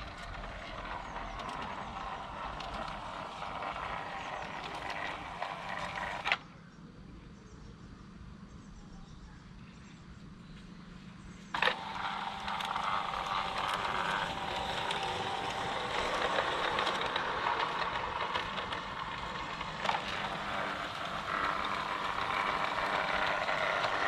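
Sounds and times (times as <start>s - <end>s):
model train wheels rattling on rails: 0.0s - 6.4s, 11.5s - 24.0s.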